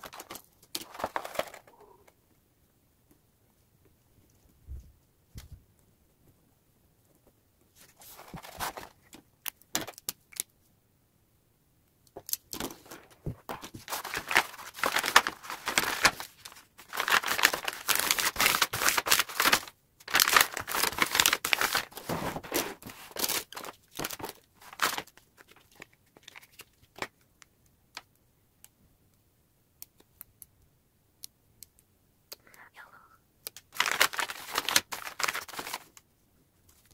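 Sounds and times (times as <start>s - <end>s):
wrapping paper crinkling: 0.0s - 1.9s, 7.8s - 9.2s, 12.6s - 27.1s, 33.7s - 36.0s.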